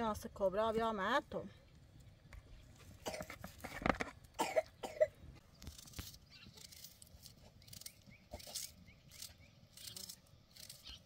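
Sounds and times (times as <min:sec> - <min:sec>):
person coughing: 0:03.0 - 0:03.4, 0:04.4 - 0:05.2.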